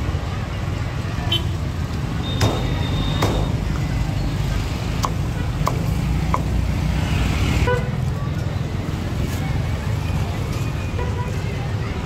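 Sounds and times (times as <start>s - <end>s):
street traffic and motorbikes: 0.0s - 12.0s
cleaver chopping on wooden block: 2.4s - 3.6s, 5.0s - 6.5s.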